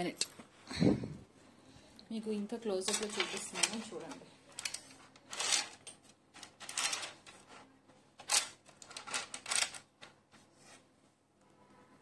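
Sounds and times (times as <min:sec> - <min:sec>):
jewellery rustling: 0:02.6 - 0:10.8.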